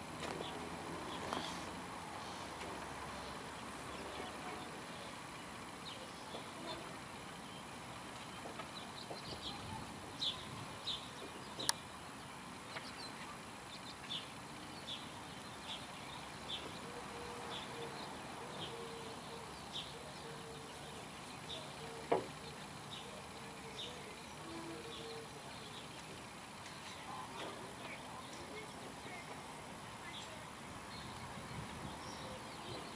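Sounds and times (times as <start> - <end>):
outdoor hiss: 0.0 - 32.9
sharp clicks: 11.6 - 11.9.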